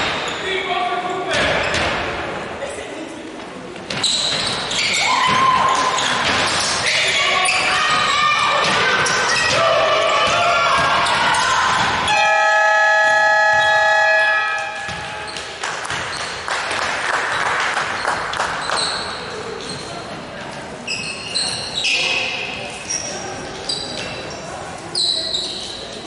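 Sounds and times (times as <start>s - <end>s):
people shouting: 5.0s - 6.0s, 6.8s - 12.2s
game clock buzzer horn: 12.1s - 15.2s
basketball bouncing on hardwood: 14.8s - 16.3s.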